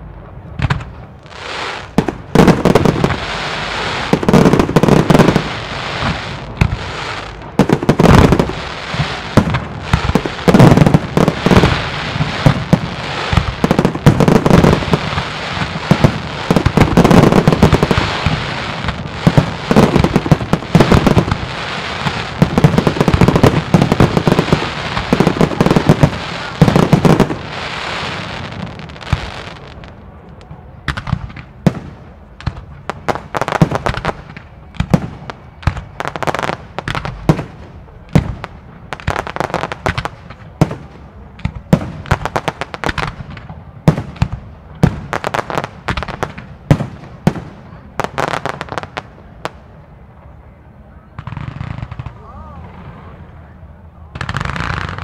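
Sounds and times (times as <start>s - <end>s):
fireworks crackle: 0.0s - 50.1s, 51.2s - 53.4s, 54.1s - 55.0s.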